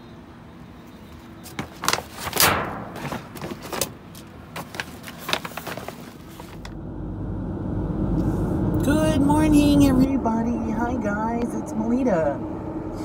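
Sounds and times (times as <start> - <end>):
things knocking inside a dumpster: 2.2 - 4.0.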